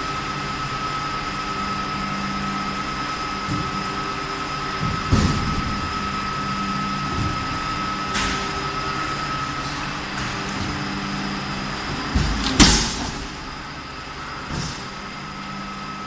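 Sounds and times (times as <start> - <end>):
hydraulic press motor hum: 0.0 - 16.0
heavy press thump: 4.8 - 6.0.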